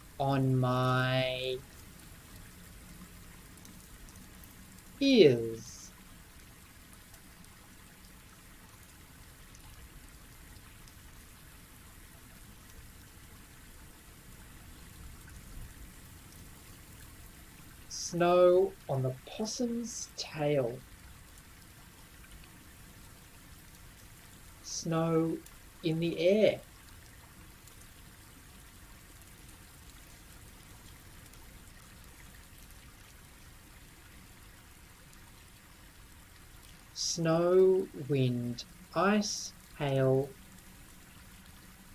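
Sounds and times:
background hiss: 0.0s - 41.9s.

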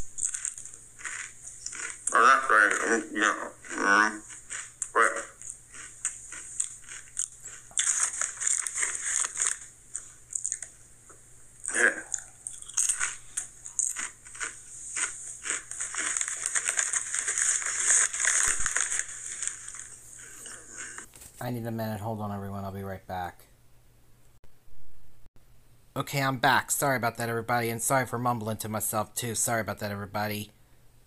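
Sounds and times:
person chewing crunchy chips: 0.0s - 10.8s, 11.6s - 21.1s.

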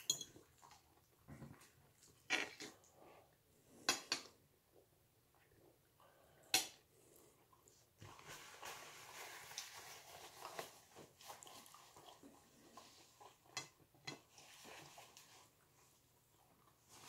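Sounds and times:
chewing: 11.2s - 13.6s.

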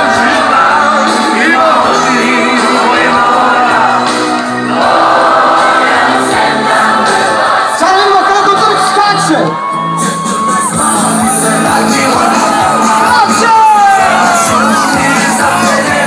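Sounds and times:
crowd of fans singing: 0.0s - 9.0s, 10.0s - 16.0s
whoops and shouts: 9.3s - 11.4s.

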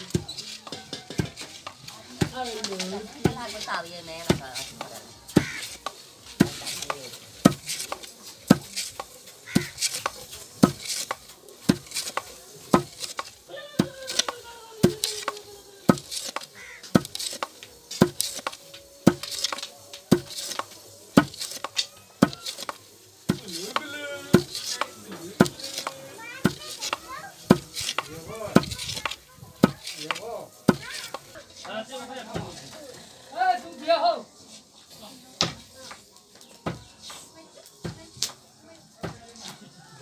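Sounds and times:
wooden pestle pounding in mortar: 0.1s - 31.2s.

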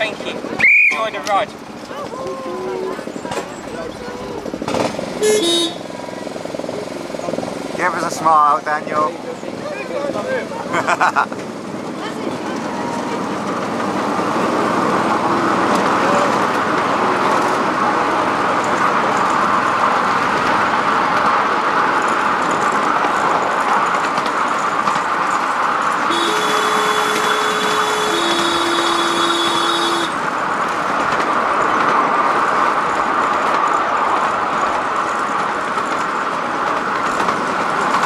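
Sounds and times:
train wheels rattling on rails: 0.0s - 38.0s
two-note train horn: 26.1s - 30.2s.

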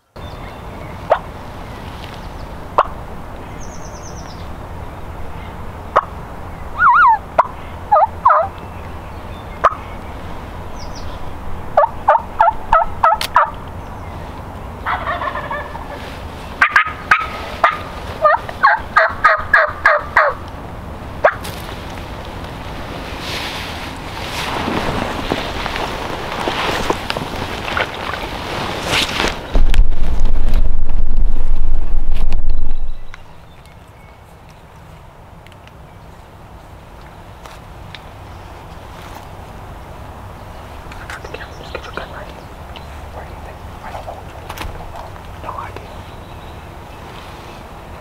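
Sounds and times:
turkey rattling call: 6.8s - 8.6s, 11.8s - 13.6s, 14.8s - 16.0s, 16.6s - 20.4s, 21.2s - 21.4s
wild turkeys yelping: 6.8s - 8.6s, 9.6s - 9.8s, 11.8s - 13.6s, 14.8s - 20.4s, 21.2s - 21.4s.

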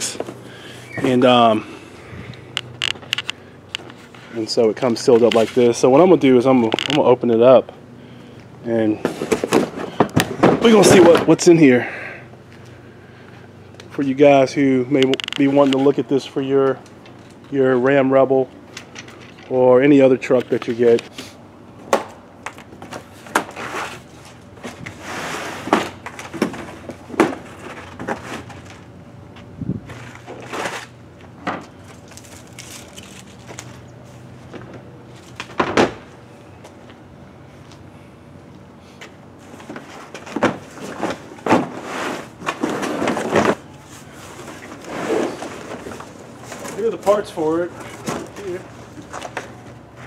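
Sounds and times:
cardboard scraping and rustling: 22.9s - 28.8s, 29.9s - 31.0s, 39.5s - 49.5s.

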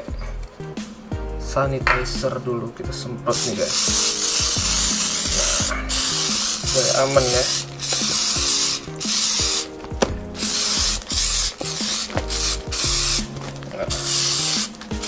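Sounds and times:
spray bottle hissing bursts: 3.3s - 15.0s.

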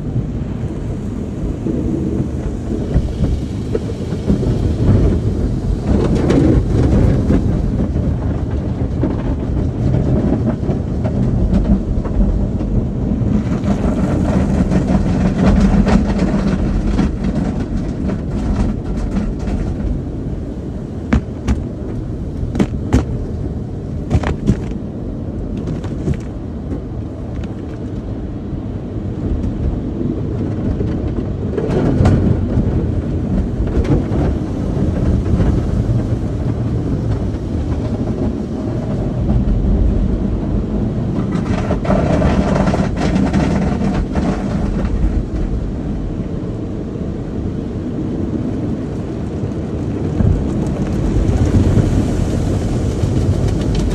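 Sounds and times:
car wash rumble: 0.0s - 53.9s
sharp knocks: 21.1s - 23.2s, 24.1s - 24.8s.

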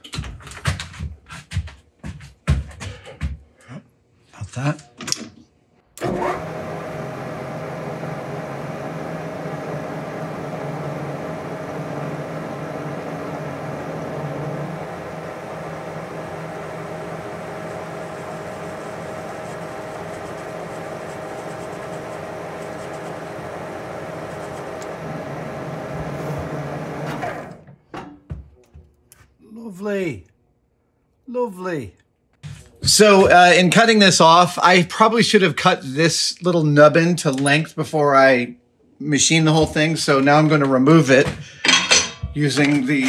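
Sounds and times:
metal lathe humming and whining: 6.0s - 27.6s.

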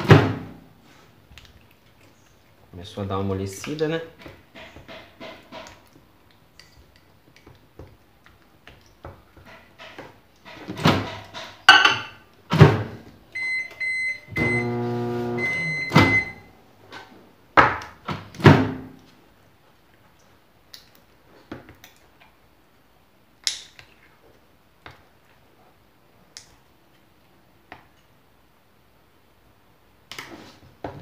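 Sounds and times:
microwave keypad beeps: 13.4s - 14.8s, 15.4s - 16.5s
microwave oven humming: 13.6s - 16.5s.

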